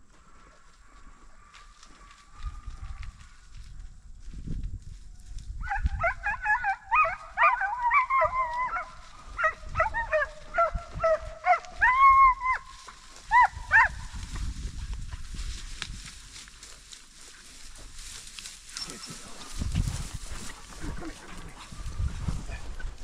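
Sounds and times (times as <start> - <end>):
hounds baying: 5.6 - 14.4, 18.7 - 23.0
dog howling: 6.0 - 12.7.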